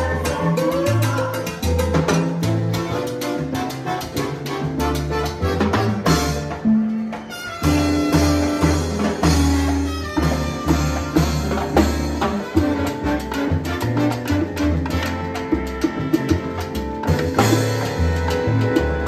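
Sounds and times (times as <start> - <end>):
hand drums and timbales: 0.0 - 19.0
brass section playing: 2.2 - 19.0
driving bass line: 7.6 - 19.0.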